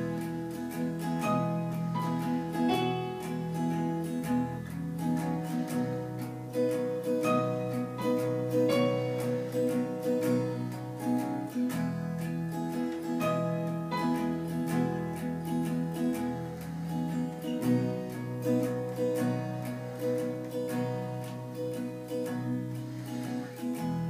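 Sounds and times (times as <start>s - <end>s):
acoustic guitar strumming: 0.0s - 24.0s
keyboard chords: 0.0s - 24.0s.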